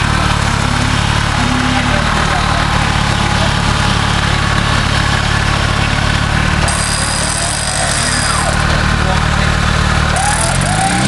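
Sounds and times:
vehicle engine running: 0.0 - 11.0.

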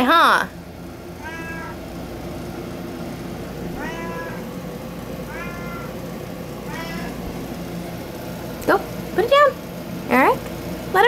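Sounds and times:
cat meowing: 1.2 - 1.8, 3.6 - 4.5, 5.3 - 6.0, 6.6 - 7.4.

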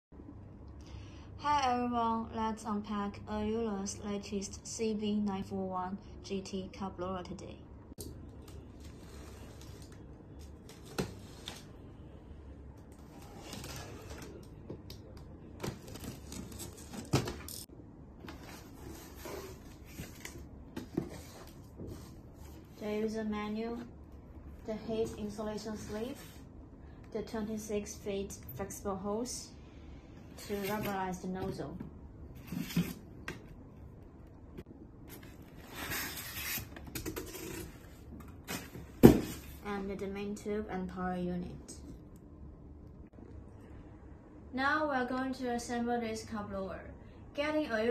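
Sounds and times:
packing materials rustling: 15.6 - 17.7
packing tape slit and scraped: 35.7 - 37.8.

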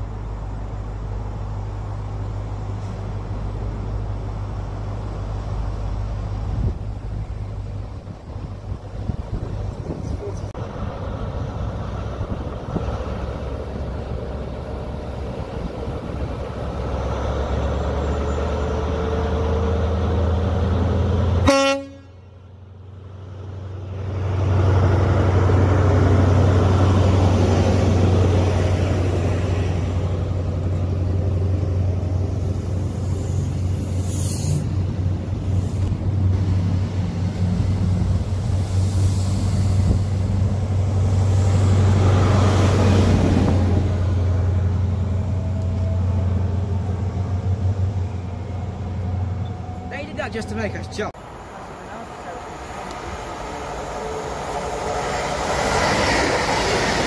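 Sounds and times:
diesel train engine running: 0.0 - 57.0
short train horn toot: 21.4 - 22.3.

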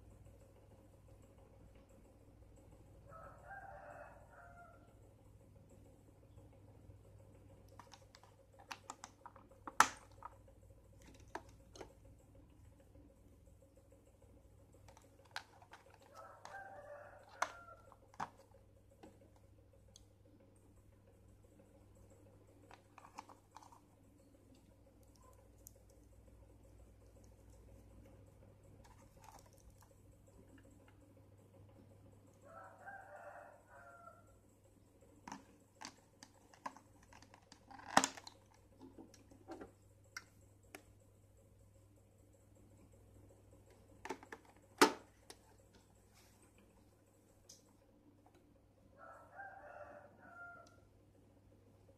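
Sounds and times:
faint rooster crow: 3.0 - 5.3, 15.6 - 18.6, 31.8 - 34.6, 48.8 - 51.0
stationery clicks and knocks on plastic: 7.7 - 10.4, 44.0 - 45.4.

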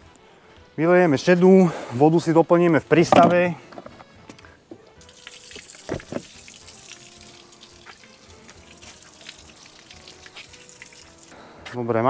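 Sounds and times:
water pouring onto pavement: 5.0 - 11.4.

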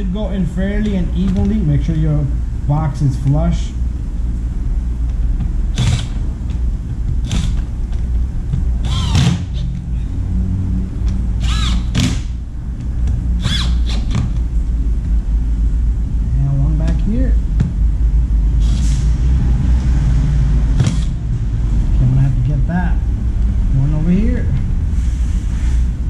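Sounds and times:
steady low hum: 0.0 - 26.0
screws squeaking as turned: 8.8 - 9.7, 11.4 - 12.0, 13.4 - 14.2.

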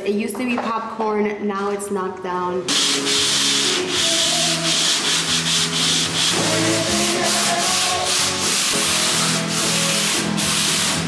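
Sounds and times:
sanding sponge rubbing drywall: 2.7 - 11.0.

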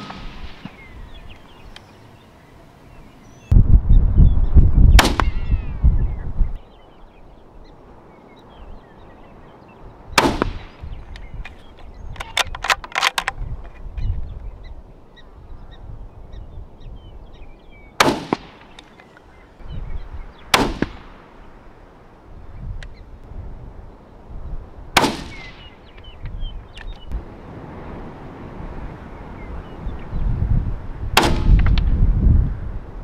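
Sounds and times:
rifle shots: 0.0 - 1.0, 5.0 - 5.4, 10.2 - 10.8, 18.0 - 18.8, 20.5 - 21.2, 25.0 - 25.7, 31.2 - 31.7
wind buffeting microphone: 0.0 - 33.0
faint chirping calls: 0.6 - 3.5, 4.2 - 12.5, 25.2 - 27.2
rifle bolt clicks: 11.2 - 13.8.

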